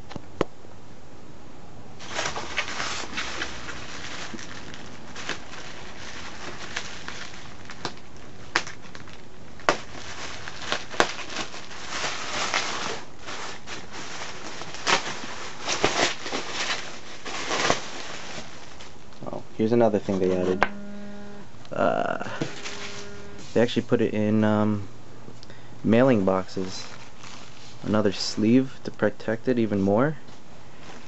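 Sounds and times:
bubble wrap rustling and crackling: 0:02.0 - 0:20.1, 0:22.4 - 0:23.9, 0:26.2 - 0:28.6.

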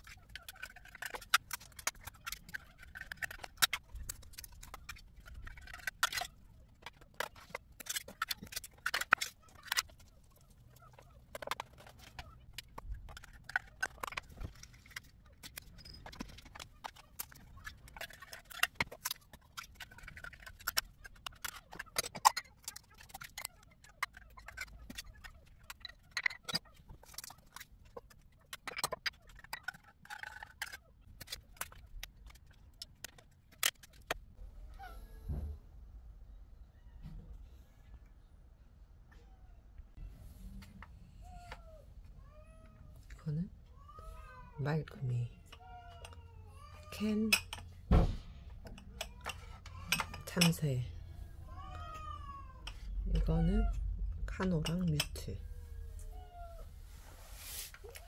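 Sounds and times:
metal spoon scraping tins: 0:00.0 - 0:34.1, 0:54.2 - 0:55.4.

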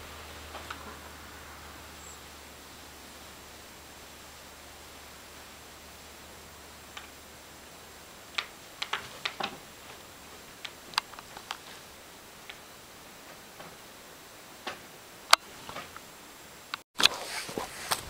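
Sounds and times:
faint steady hiss: 0:00.0 - 0:18.0
sharp clicks and taps: 0:08.3 - 0:10.0, 0:10.6 - 0:11.6.

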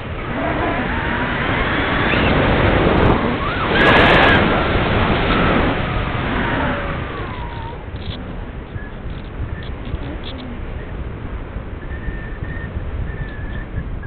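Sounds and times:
wind rushing over camera: 0:00.0 - 0:14.0.

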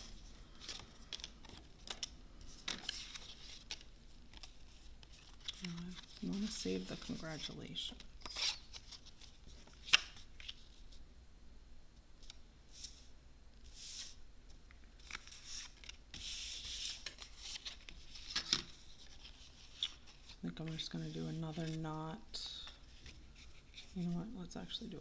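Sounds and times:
paper rubbing and sliding: 0:15.0 - 0:21.8.

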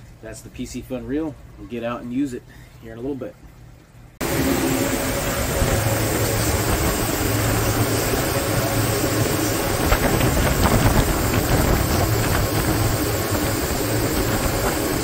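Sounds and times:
outboard motors humming: 0:03.9 - 0:15.0
water rushing from wake: 0:04.2 - 0:15.0.

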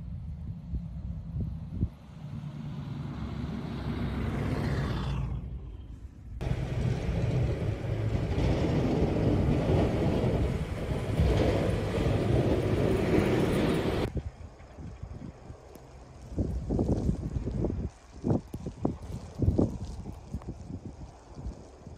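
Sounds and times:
snowplow engine rumbling: 0:00.0 - 0:14.1
truck tyres on snowy road: 0:00.0 - 0:21.9
plow blade pushing snow: 0:06.4 - 0:14.1.

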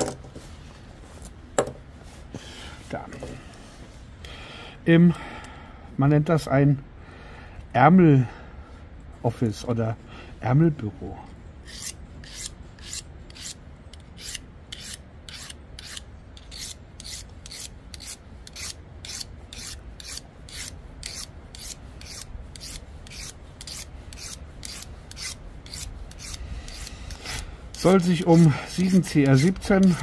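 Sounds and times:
knife blade scraping sharpening rod: 0:11.6 - 0:30.0.

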